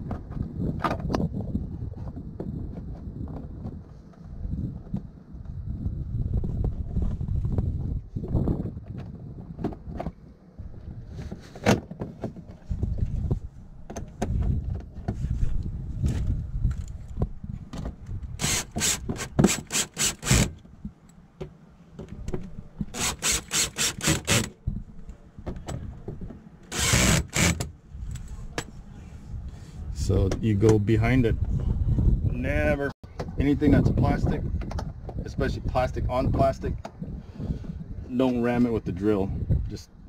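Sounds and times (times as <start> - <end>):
cordless drill driving screws: 18.4 - 20.6, 22.9 - 24.6, 26.7 - 27.7.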